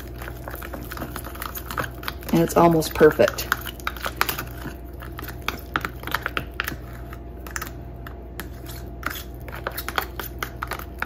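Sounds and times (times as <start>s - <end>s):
knife scraping plastic container: 8.4s - 11.0s.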